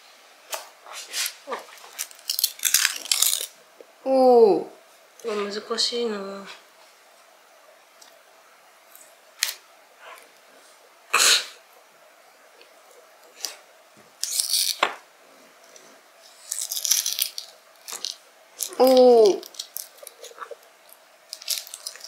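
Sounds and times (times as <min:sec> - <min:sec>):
onion skin crackling: 0:01.2 - 0:03.6, 0:14.2 - 0:14.9, 0:15.7 - 0:22.0.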